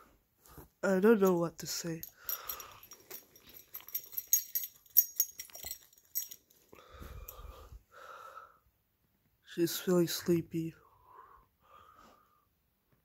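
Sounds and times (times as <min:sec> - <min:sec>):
collar tags jingling: 0:01.0 - 0:07.7.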